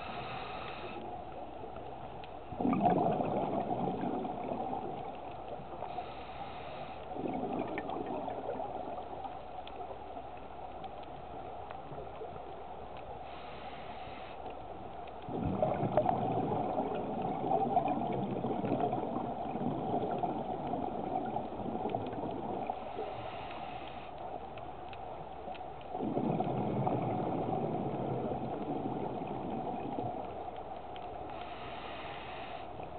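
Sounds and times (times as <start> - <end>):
diver inhaling through regulator: 0.0 - 1.1, 5.9 - 7.1, 13.2 - 14.4, 22.8 - 24.2, 31.3 - 32.8
exhaled bubbles rushing: 2.5 - 5.4, 7.1 - 9.3, 15.3 - 22.8, 25.9 - 30.3.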